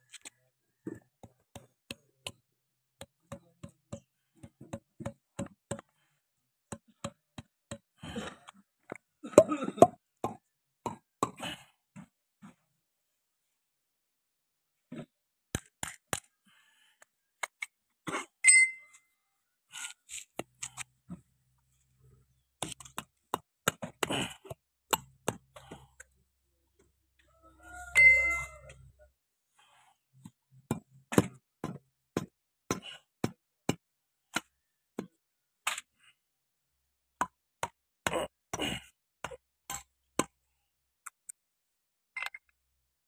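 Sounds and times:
ringing metal clinks: 18.4s - 19.0s, 27.9s - 28.7s.

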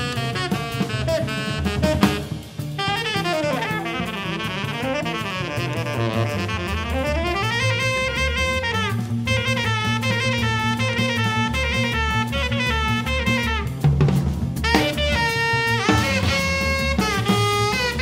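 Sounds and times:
drum and cymbal strokes: 0.0s - 6.7s, 12.7s - 18.0s
tenor saxophone runs: 0.0s - 14.0s, 14.6s - 18.0s
stepping bass notes: 0.0s - 18.0s.

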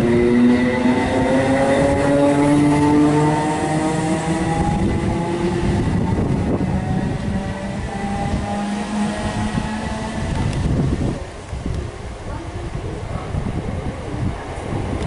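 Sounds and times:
electric train traction whine: 0.0s - 11.8s
wheels rumbling on rails: 0.0s - 15.0s.

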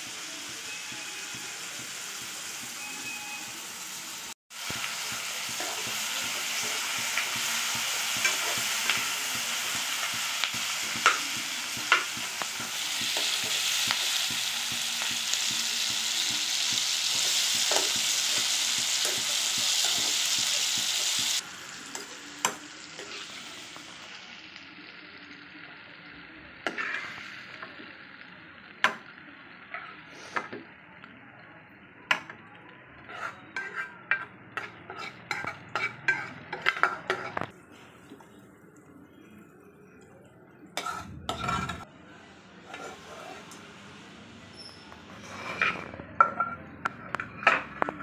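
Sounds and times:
vegetables sizzling in oil: 0.0s - 30.4s
spatula scraping and tapping pan: 26.6s - 27.2s, 33.1s - 37.5s, 40.8s - 41.8s, 42.7s - 43.6s, 45.1s - 48.0s.

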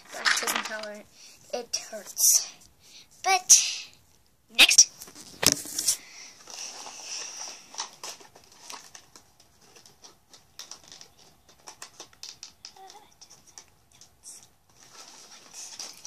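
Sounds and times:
plastic packaging crinkling: 0.0s - 1.0s, 5.0s - 13.6s, 14.7s - 16.0s
small plastic pieces clicking: 0.1s - 1.0s, 10.3s - 14.1s.

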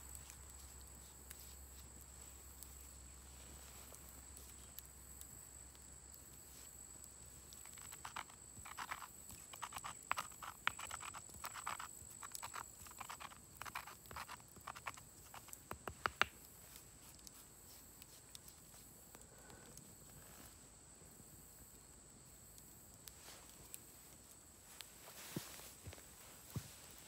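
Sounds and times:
grain grinding on stone: 7.5s - 19.0s.

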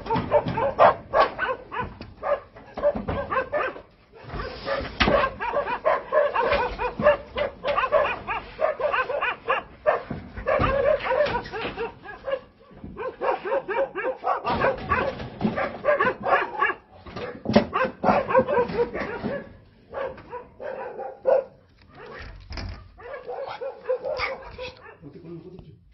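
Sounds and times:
dog barking rapidly: 0.0s - 25.1s.

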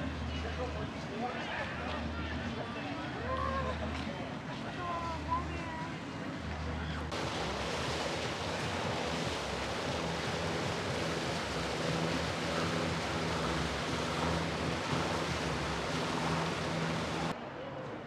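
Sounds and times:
boat motor humming: 6.0s - 17.3s
water rushing: 6.0s - 17.4s.

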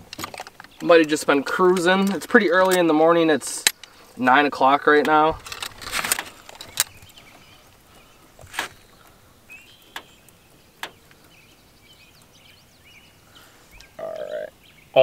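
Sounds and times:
sharp handling clicks and knocks: 0.0s - 4.0s, 4.9s - 9.2s, 9.8s - 11.4s
faint bird chirps: 6.6s - 15.0s.

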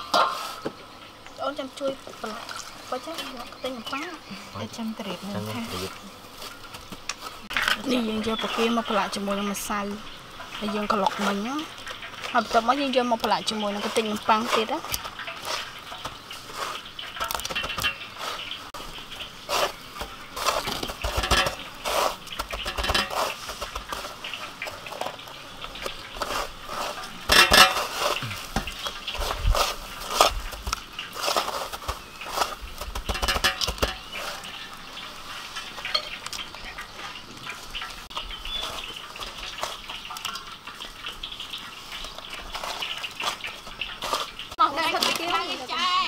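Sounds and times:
breadcrumbs rustling: 1.5s - 46.0s.

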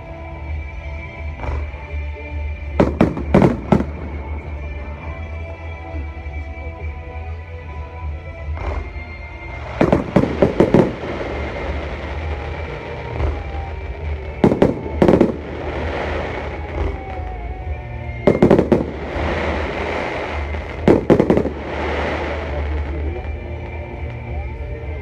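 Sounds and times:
fireworks bursting: 1.2s - 6.4s, 8.4s - 24.6s.

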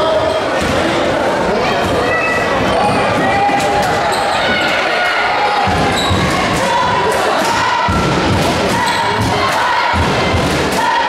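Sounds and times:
crowd chanting: 2.6s - 11.0s.

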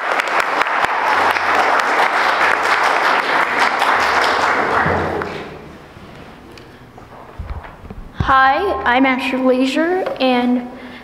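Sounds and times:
crowd applauding: 0.0s - 5.8s.

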